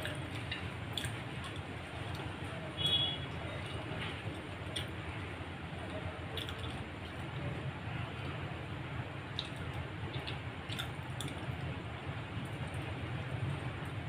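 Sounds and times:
wet chewing and squishing: 0.0s - 2.4s, 3.3s - 5.2s, 5.8s - 7.3s, 9.3s - 11.8s
steady low hum: 0.0s - 14.0s.

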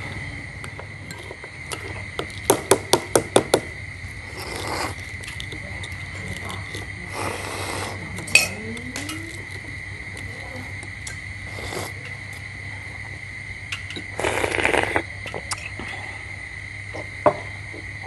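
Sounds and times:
faint high whine: 0.0s - 18.0s
eggshell clicking and crackling: 4.4s - 6.9s.

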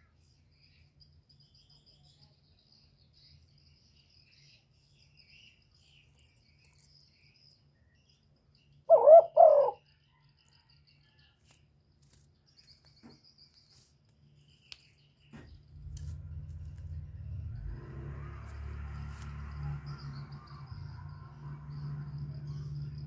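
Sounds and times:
dove cooing: 8.9s - 9.8s.

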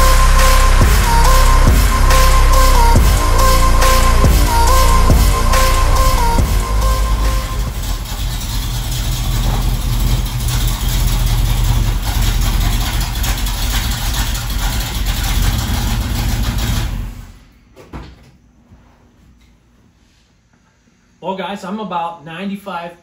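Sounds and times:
car engine running and idling: 0.0s - 17.5s.

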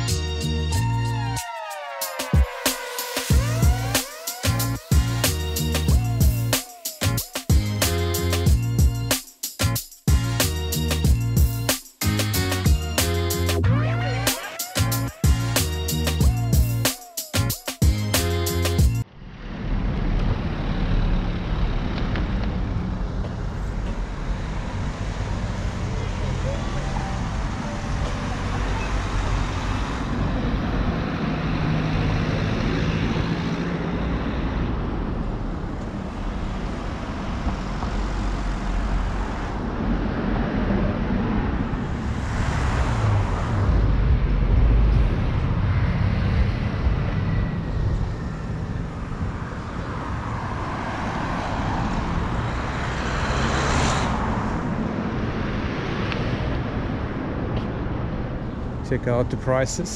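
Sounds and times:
cars passing by: 17.8s - 59.9s
low traffic rumble: 18.4s - 59.9s.

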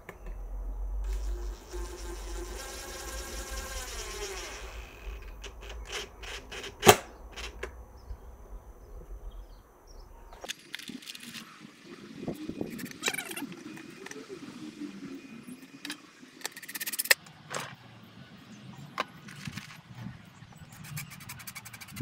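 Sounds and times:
cordless drill motor whining: 1.0s - 7.7s
drill clutch clicks: 1.1s - 7.8s.

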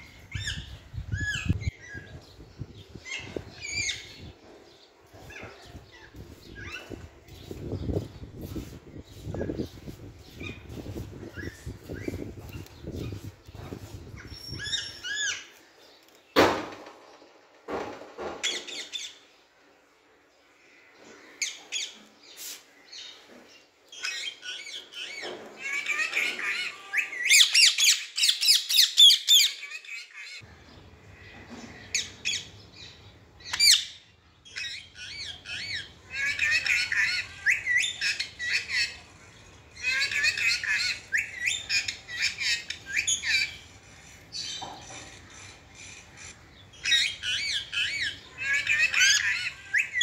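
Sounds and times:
parakeet chirps and squawks: 33.4s - 50.0s.

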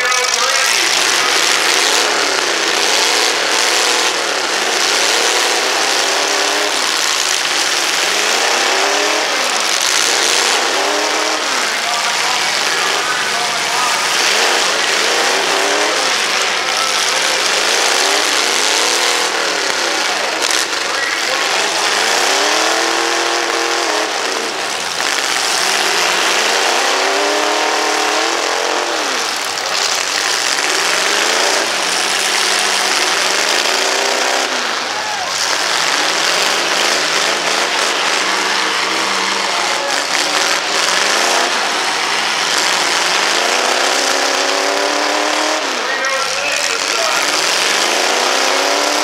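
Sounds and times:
engines revving: 0.0s - 49.0s
roar of engines running: 0.0s - 49.0s.

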